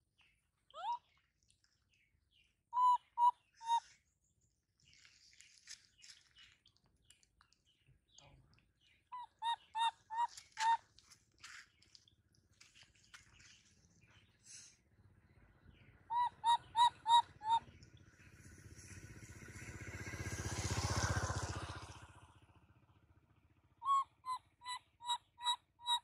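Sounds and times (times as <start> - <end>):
baby monkey squeaky calls: 0.8 - 1.0, 2.8 - 3.9, 9.2 - 10.8, 16.1 - 17.7, 23.8 - 26.0.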